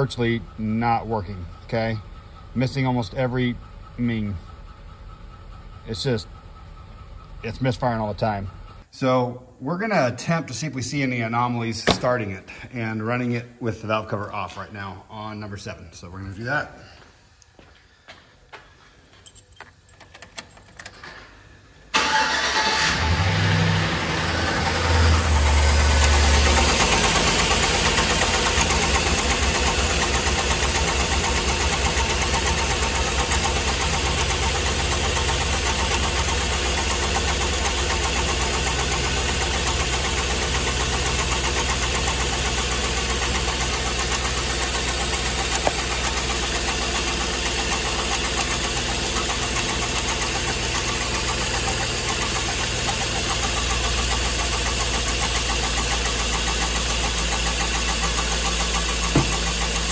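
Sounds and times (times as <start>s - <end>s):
engine idling: 0.0s - 8.9s, 22.0s - 59.9s
valvetrain knocking: 58.6s - 59.9s.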